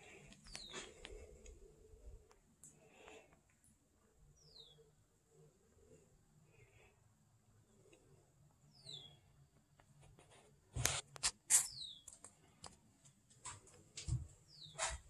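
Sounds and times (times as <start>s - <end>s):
faint bird chirps: 0.4s - 1.4s, 4.3s - 5.0s, 8.6s - 9.4s.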